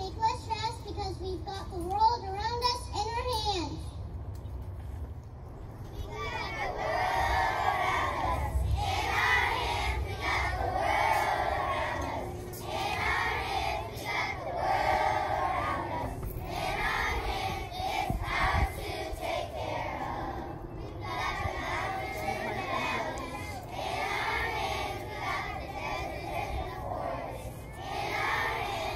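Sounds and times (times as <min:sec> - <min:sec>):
children singing in unison: 0:06.1 - 0:28.9.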